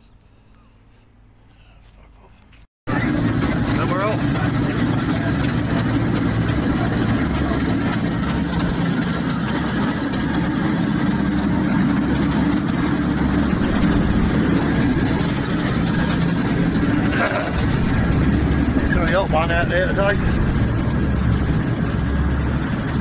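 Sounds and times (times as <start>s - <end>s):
boat engine humming: 2.9s - 23.0s
wind rushing: 7.2s - 23.0s.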